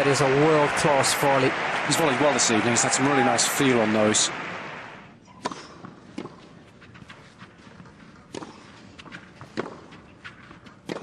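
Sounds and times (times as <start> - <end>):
tennis ball struck by rackets: 5.4 - 6.4, 8.2 - 8.6, 9.4 - 9.9.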